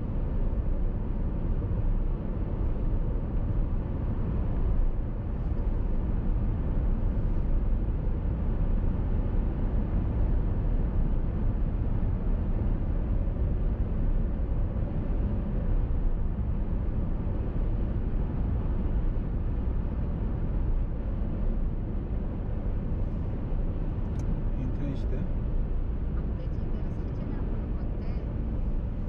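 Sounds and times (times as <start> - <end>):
car driving on highway: 0.0 - 29.0.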